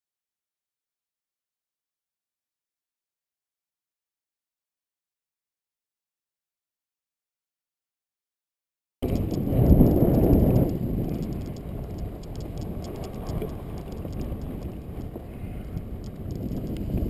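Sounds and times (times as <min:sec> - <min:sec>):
buggy wheels rattling over grass: 0:09.0 - 0:17.0
wind buffeting microphone: 0:09.0 - 0:17.0.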